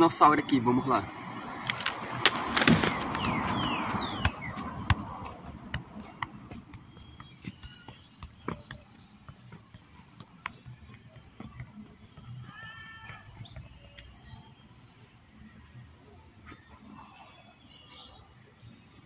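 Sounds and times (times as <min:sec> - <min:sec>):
foot thudding on football: 0:02.6 - 0:13.9.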